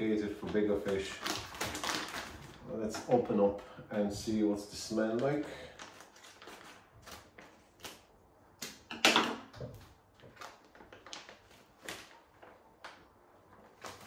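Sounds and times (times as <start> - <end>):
plastic bag crinkling: 0.0 - 3.1, 10.1 - 14.0.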